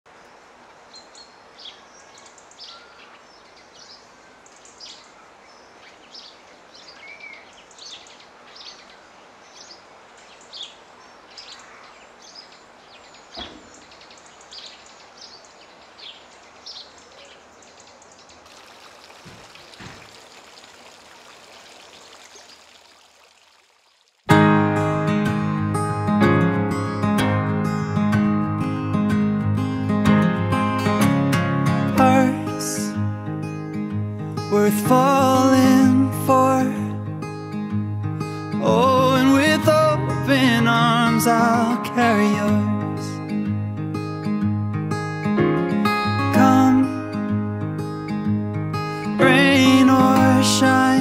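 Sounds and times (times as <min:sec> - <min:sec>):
birds chirping and singing: 0:00.9 - 0:18.4
running water: 0:14.3 - 0:24.3.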